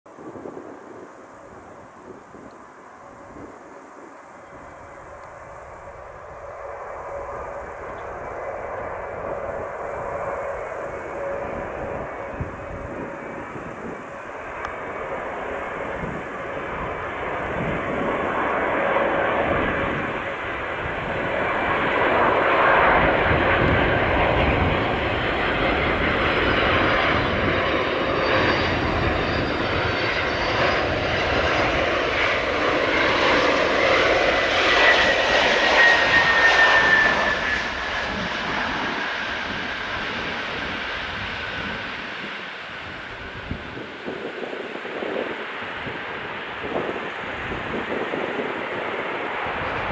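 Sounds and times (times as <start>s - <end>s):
falling jet whine: 0.1s - 49.9s
jet engine noise: 0.1s - 49.9s.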